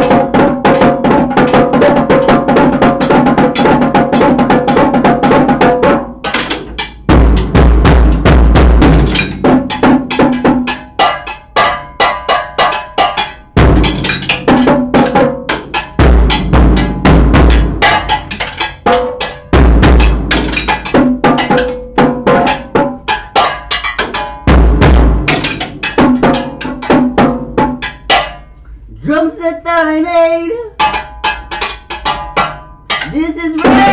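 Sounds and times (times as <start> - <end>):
drum kit played with sticks: 0.0 - 28.9, 30.5 - 33.9.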